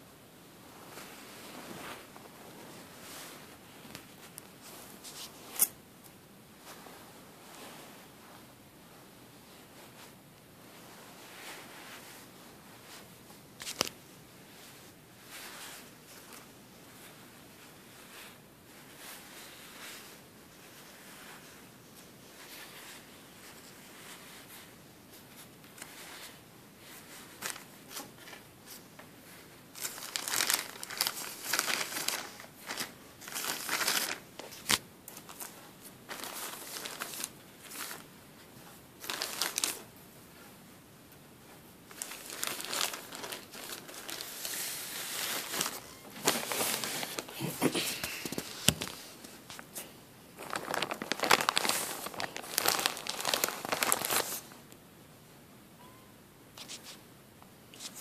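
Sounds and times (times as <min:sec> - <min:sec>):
plastic bag crinkling: 0:29.8 - 0:35.5, 0:36.1 - 0:38.0, 0:39.0 - 0:39.9, 0:41.9 - 0:47.5, 0:50.4 - 0:54.6.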